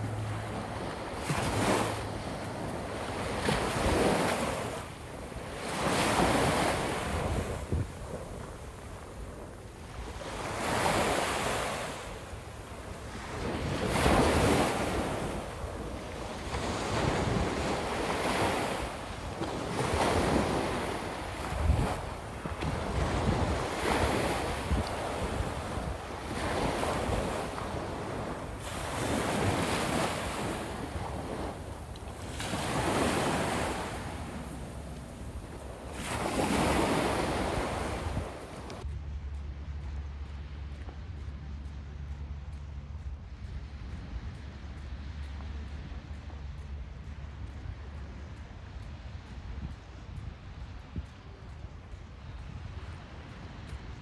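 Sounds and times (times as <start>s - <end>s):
waves breaking on beach: 0.0s - 38.9s
wind buffeting microphone: 0.0s - 54.0s.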